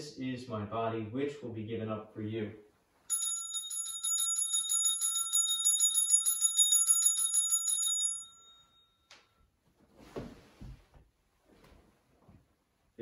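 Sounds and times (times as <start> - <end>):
altar bells jingling: 3.1 - 9.1
soft rustle or knock: 9.6 - 12.6.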